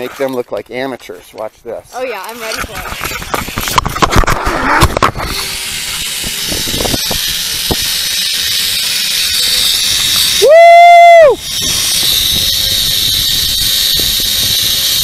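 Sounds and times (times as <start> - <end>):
zipline pulleys on cable: 2.0 - 15.0
wind on microphone: 2.5 - 8.2, 9.9 - 15.0
knocks and rattles: 2.5 - 10.2
loud high squeal: 5.3 - 15.0.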